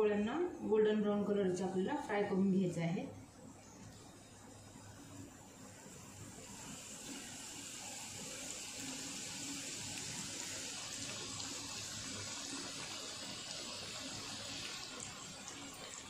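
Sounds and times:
bread deep-frying in sizzling oil: 4.0s - 16.0s.

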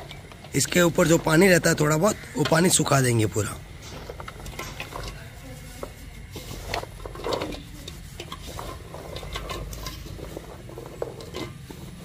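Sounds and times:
cloth rustling and scraping: 3.8s - 12.0s.

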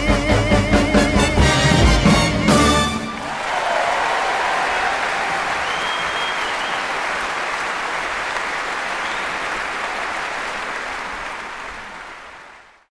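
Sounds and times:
large audience applauding: 3.0s - 12.9s
high whistle: 5.5s - 7.0s.

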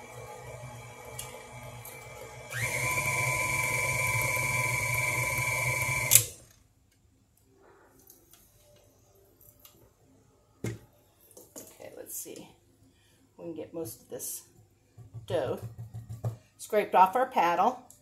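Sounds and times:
stand mixer running: 0.0s - 6.3s.

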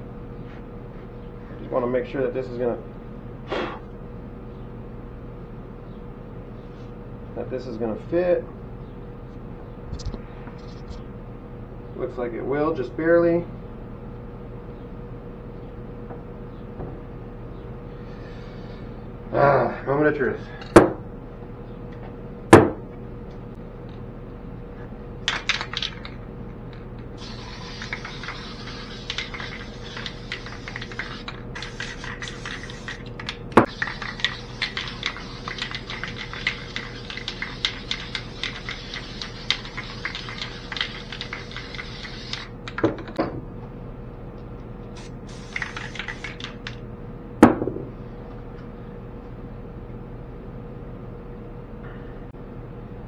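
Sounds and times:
spray can rattly clicks: 25.3s - 26.2s, 27.2s - 42.9s, 45.0s - 46.8s
spray paint can hissing: 27.2s - 42.5s, 45.0s - 46.8s.

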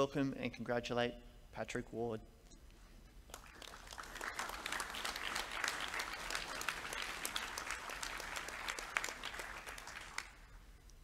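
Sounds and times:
audience applauding: 3.3s - 10.6s.

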